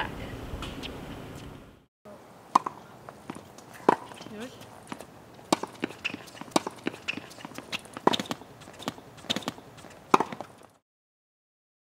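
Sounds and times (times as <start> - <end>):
tennis balls bouncing on hard court: 2.5 - 10.8
tennis balls hit with rackets: 2.5 - 10.8.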